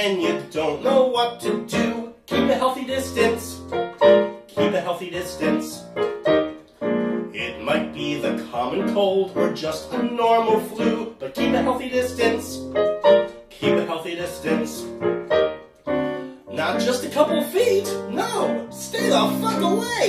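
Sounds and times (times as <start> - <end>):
man singing: 0.0 - 3.7, 4.4 - 5.8, 7.2 - 12.7, 13.5 - 15.0, 16.5 - 20.0
piano accompaniment: 0.0 - 20.0.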